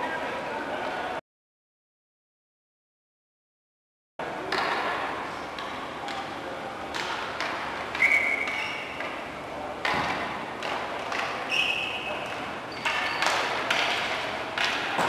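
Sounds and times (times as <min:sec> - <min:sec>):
noisy echoing hall: 0:04.2 - 0:15.0
sticks and ball clacking: 0:12.1 - 0:15.0.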